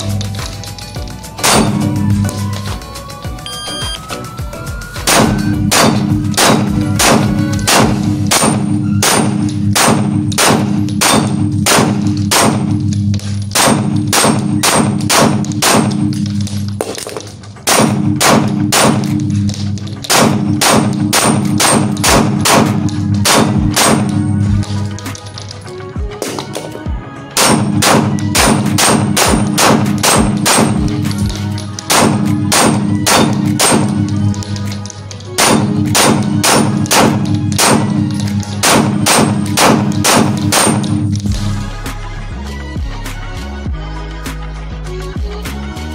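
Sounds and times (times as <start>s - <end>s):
backing music: 0.0s - 45.9s
pistol shots: 1.4s - 1.9s, 5.0s - 25.5s, 27.4s - 41.3s.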